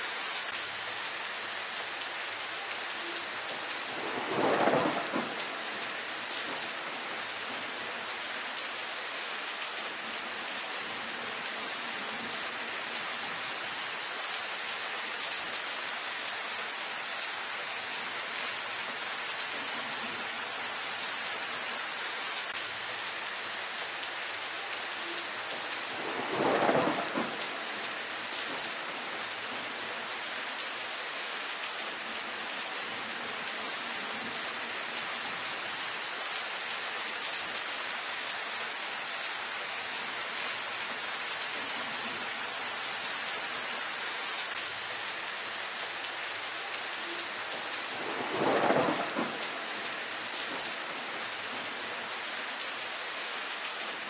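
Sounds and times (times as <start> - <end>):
rain falling on leaves: 0.0 - 54.0
thunder claps: 3.9 - 5.6, 26.0 - 27.8, 48.0 - 49.8.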